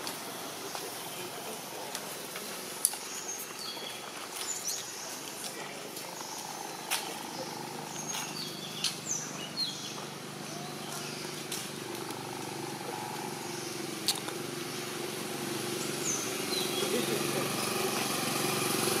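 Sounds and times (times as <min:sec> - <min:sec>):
vehicle engine running: 0:04.9 - 0:19.0.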